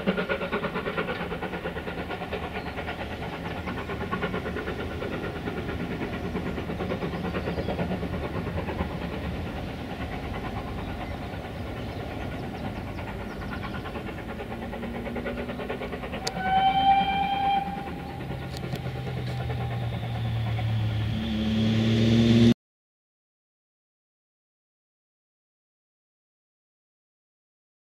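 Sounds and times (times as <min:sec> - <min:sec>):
steam locomotive exhaust beats: 0:00.0 - 0:22.6
low steady drone: 0:09.5 - 0:22.6
steam locomotive whistle: 0:16.2 - 0:18.7.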